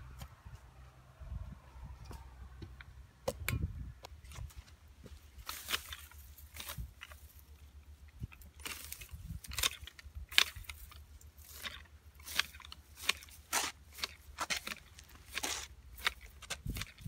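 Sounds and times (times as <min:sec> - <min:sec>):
stems and leaves rustling: 0:04.1 - 0:17.0.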